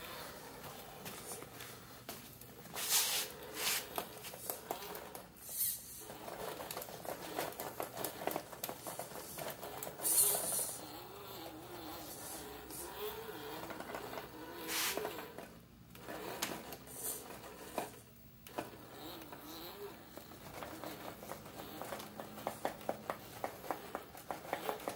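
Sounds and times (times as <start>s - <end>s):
toy car motor whining: 2.9s - 24.9s
rubber tires scraping on wooden steps: 6.0s - 17.9s.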